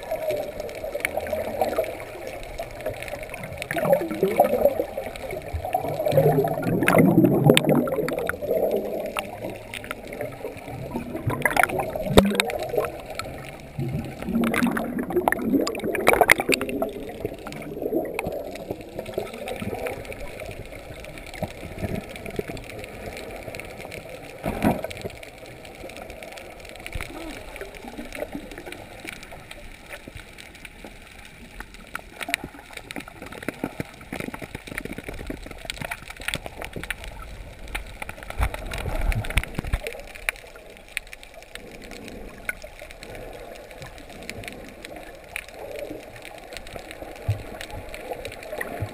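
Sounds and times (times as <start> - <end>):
wash of water: 0.0 - 23.5
underwater bubbling of exhaled air: 0.0 - 48.9.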